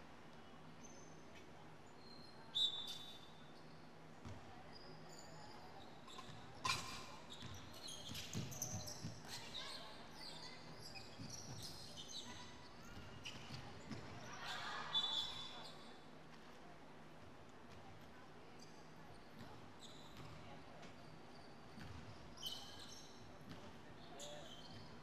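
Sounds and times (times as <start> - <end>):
sneakers squeaking: 5.0 - 15.9, 18.6 - 25.0.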